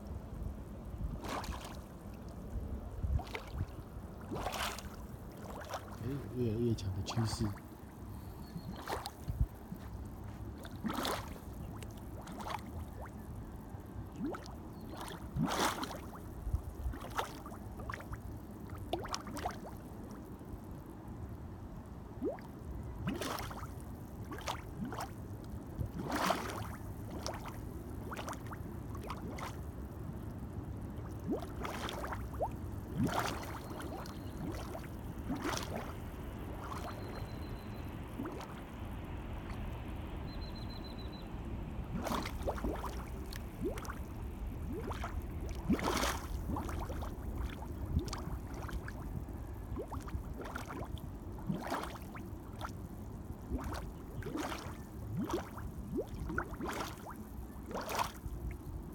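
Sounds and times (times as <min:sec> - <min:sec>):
low steady background: 0:00.0 - 0:15.4, 0:26.8 - 0:58.9
mud bubbles plopping: 0:01.1 - 0:01.9, 0:03.1 - 0:06.2, 0:08.4 - 0:10.0, 0:10.6 - 0:13.2, 0:14.1 - 0:16.2, 0:18.7 - 0:19.8, 0:23.1 - 0:23.6, 0:24.3 - 0:25.2, 0:25.8 - 0:29.6, 0:31.0 - 0:35.9, 0:36.5 - 0:37.4, 0:38.2 - 0:38.6, 0:41.9 - 0:49.1, 0:49.7 - 0:52.7, 0:53.4 - 0:58.2.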